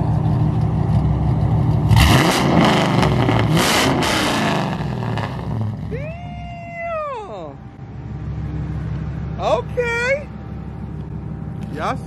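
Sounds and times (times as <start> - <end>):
car engine revving: 0.2 - 6.0.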